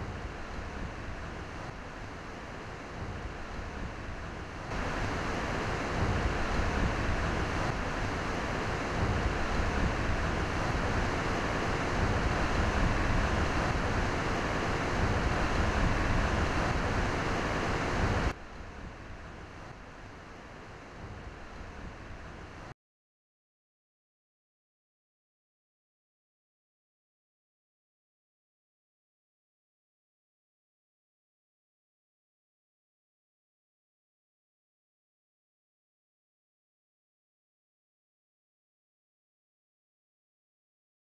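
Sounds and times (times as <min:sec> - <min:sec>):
howling wind: 0:00.0 - 0:22.7
driven rain: 0:04.8 - 0:18.3.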